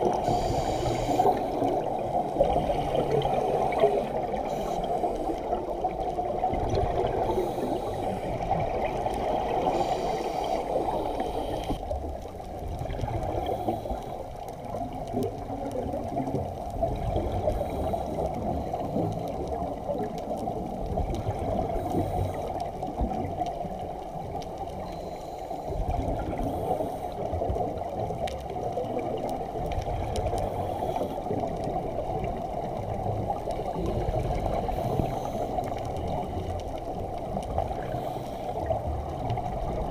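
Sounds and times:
gurgling bubbles: 0.0 - 25.1
underwater watery rush: 0.0 - 39.9.

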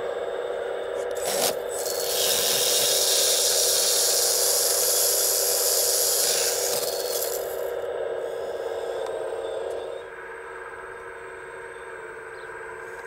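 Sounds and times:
steady mechanical hum: 0.0 - 13.0
motor saw cutting branch: 1.0 - 10.0.

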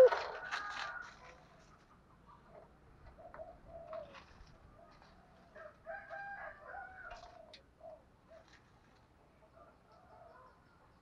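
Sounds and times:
dove cooing: 0.0 - 0.5, 3.2 - 4.4.

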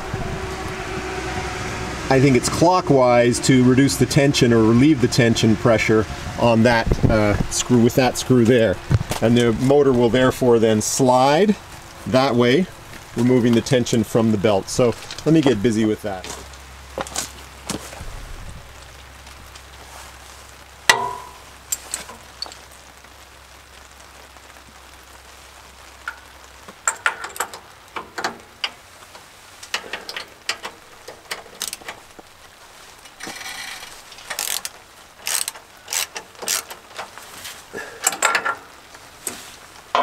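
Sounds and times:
metal clank: 20.9 - 22.2
socket ratchet clicking: 34.3 - 36.8.

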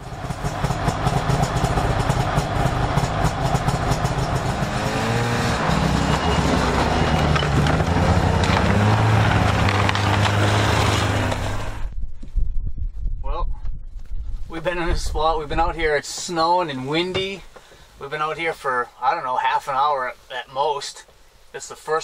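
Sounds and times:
snowmobile engine running: 0.0 - 11.8.

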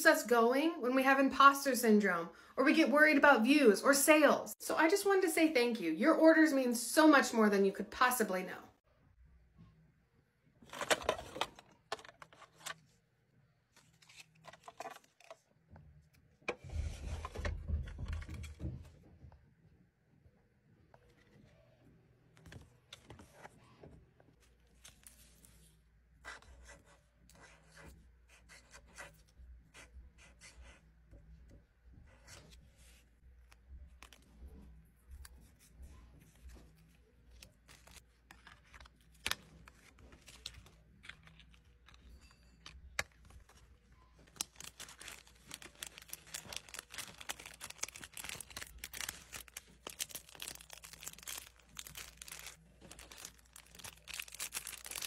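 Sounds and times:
plastic sleeve crinkling: 36.4 - 55.0.

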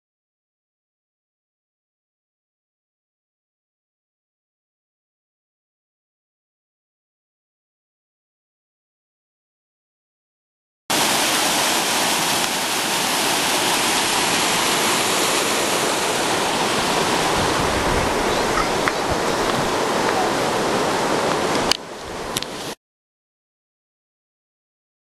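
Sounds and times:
fountain water splashing: 10.9 - 22.8.

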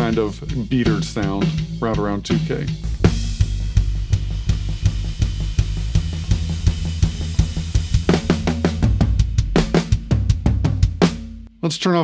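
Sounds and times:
bass guitar: 0.0 - 11.5
drum kit groove: 0.0 - 11.6
cymbal crash: 2.8 - 11.4.

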